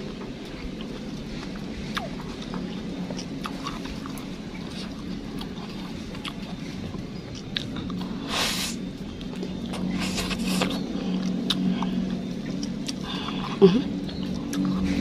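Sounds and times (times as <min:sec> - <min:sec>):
soft wet chewing: 0:00.0 - 0:15.0
steady low hum: 0:00.0 - 0:15.0
wet slurping bite: 0:09.7 - 0:13.2.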